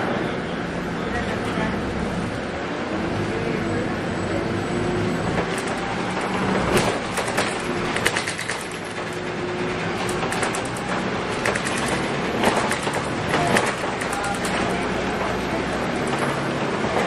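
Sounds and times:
bus diesel engine running: 0.0 - 17.0
sharp rattles and clicks: 5.4 - 17.0.

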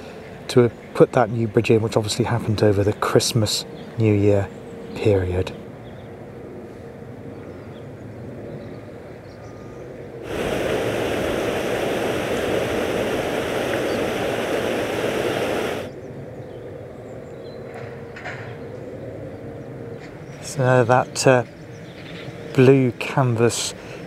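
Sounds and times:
faint hum: 10.2 - 15.9
water rushing: 10.2 - 15.9.

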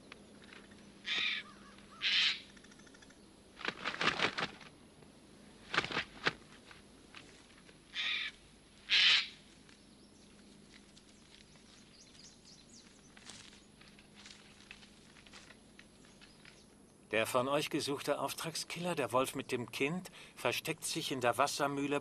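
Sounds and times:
bird of prey crying: 1.0 - 3.0, 7.9 - 9.4
wings flapping: 3.6 - 4.7, 5.6 - 7.3.

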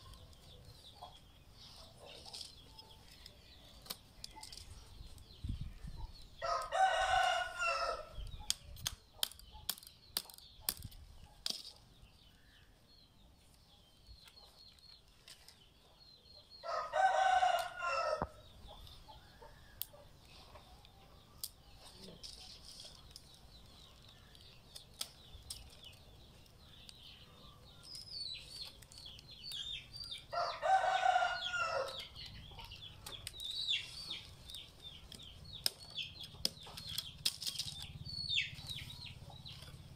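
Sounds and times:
faint small birds chirping: 0.0 - 39.9
rooster crowing: 6.4 - 8.1, 16.6 - 18.4, 30.3 - 32.0.

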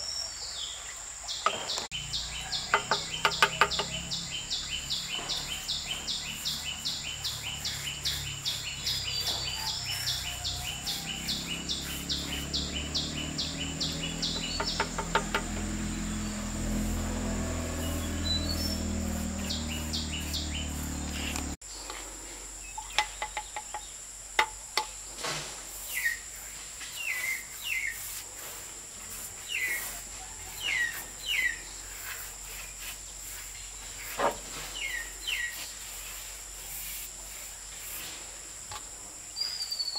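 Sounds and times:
bird chirping: 0.0 - 21.8, 25.9 - 28.2, 29.4 - 36.2, 39.3 - 39.9
insects droning: 0.0 - 39.9.

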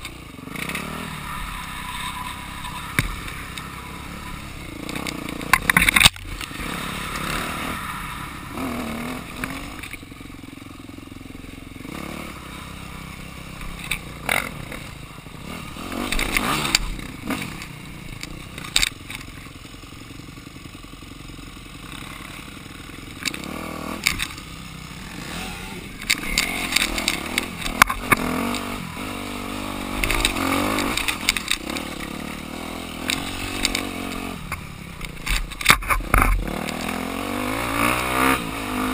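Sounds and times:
dirt bike engine revving: 0.0 - 19.8, 20.7 - 38.9.

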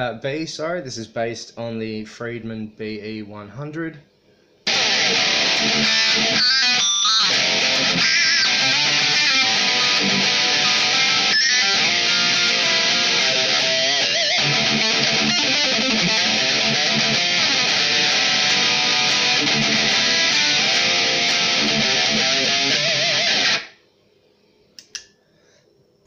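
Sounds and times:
distorted electric guitar riff: 4.7 - 23.8.

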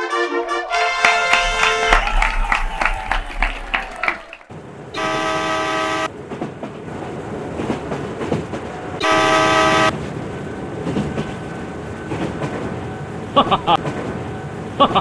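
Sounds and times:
electronic toy horn toot: 5.0 - 6.1.

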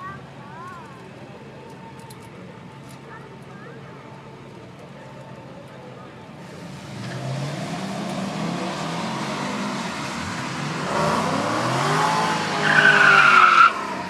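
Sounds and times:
drag racing cars accelerating: 6.4 - 14.0.

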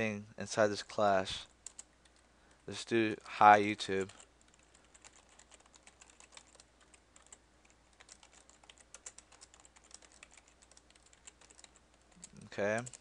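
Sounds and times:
computer keyboard clicking: 1.6 - 2.2, 4.0 - 13.0.

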